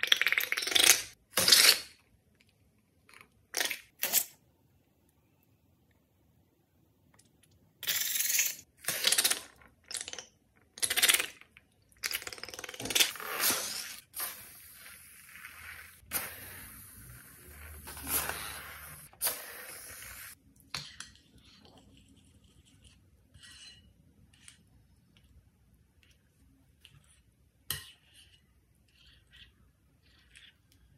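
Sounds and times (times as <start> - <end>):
slime squirting from balloons: 12.8 - 20.4
faint stirring scrapes: 13.1 - 25.3, 26.0 - 30.9.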